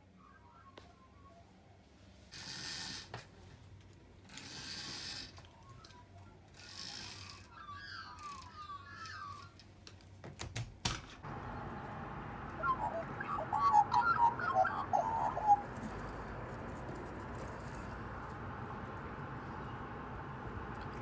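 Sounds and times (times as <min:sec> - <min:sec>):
magpies warbling: 0:07.3 - 0:09.6, 0:11.2 - 0:21.0.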